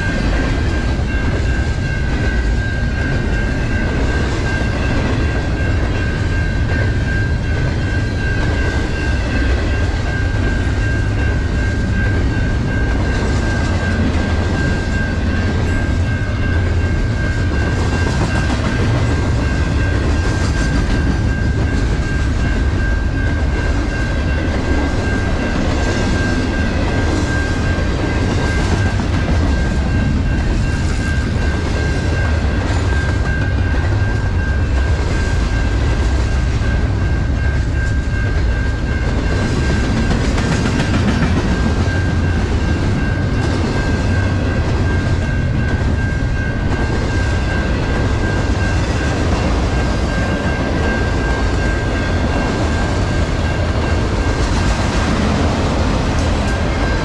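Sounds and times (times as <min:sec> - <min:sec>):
rhythmic clickety-clack: 0:00.0 - 0:57.0
train wheels rumbling on rails: 0:00.0 - 0:57.0.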